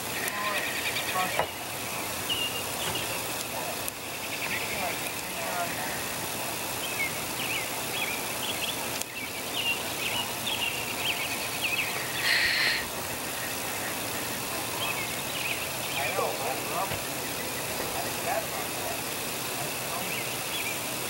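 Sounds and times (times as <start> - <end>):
birds chirping: 0.0 - 21.0
outdoor background noise: 0.0 - 21.0
harsh noisy burst: 11.9 - 20.0.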